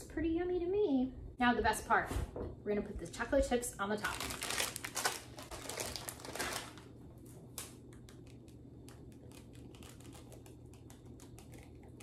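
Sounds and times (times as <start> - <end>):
plastic bag crinkling: 4.0 - 12.0.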